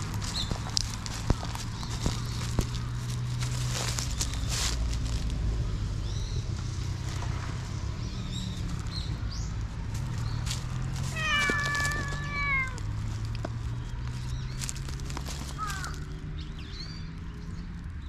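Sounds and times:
cat meowing: 11.1 - 12.8.

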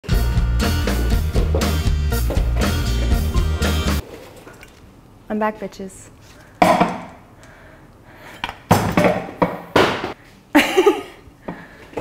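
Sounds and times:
cake stand crashing on floor: 8.7 - 10.2.

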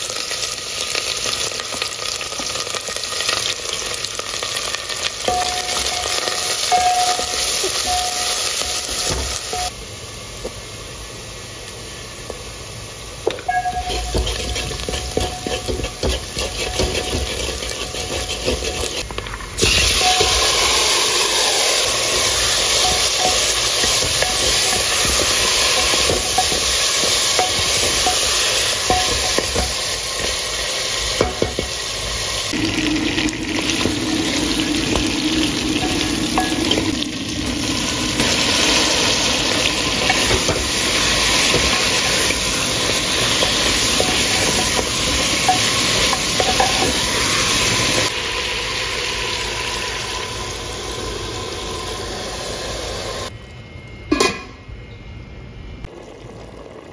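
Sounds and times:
meat sizzling in a pot: 0.0 - 53.3
spatula scraping a pot: 13.5 - 19.1, 19.7 - 30.4, 40.0 - 47.3.

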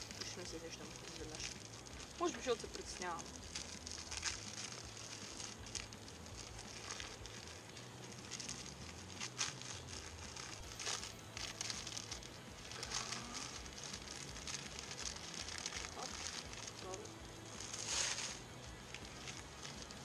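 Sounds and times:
plastic wrapper crinkling: 0.0 - 20.0.

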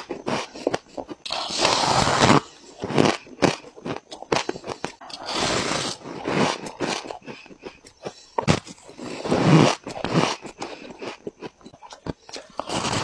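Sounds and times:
squeaky crunching of frost: 0.0 - 7.2, 12.0 - 13.0.

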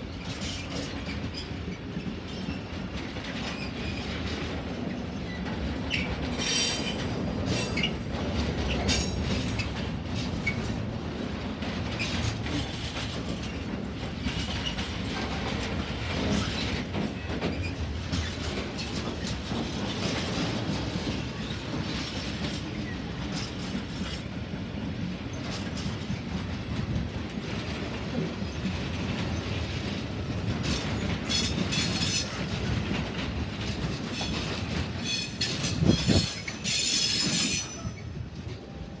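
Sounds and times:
freight wagons rumbling on rails: 0.0 - 39.0
clatter over rail joints: 0.1 - 38.6.

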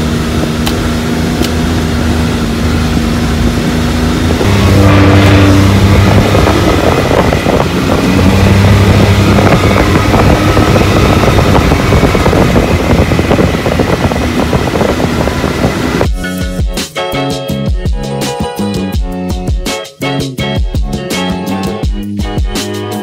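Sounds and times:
off-road vehicle engine: 0.0 - 16.1
wind on microphone: 1.6 - 16.2.

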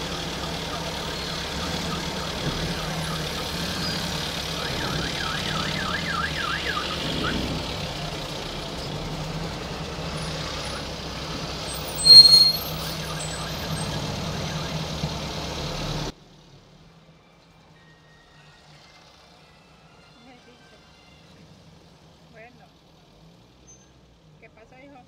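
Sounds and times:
vehicle engine hum with road noise: 0.0 - 25.0
short high-pitched tone: 12.0 - 12.8.

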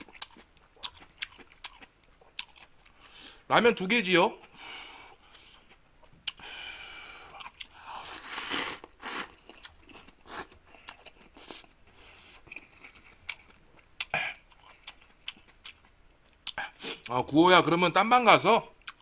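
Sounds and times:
chewing noisily: 0.0 - 3.2, 7.1 - 17.2
man slurping noodles: 8.0 - 9.4.

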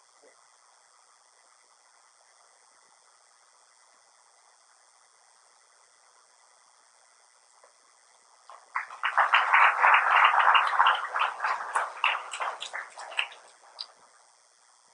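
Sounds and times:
audience applauding: 8.5 - 13.9.

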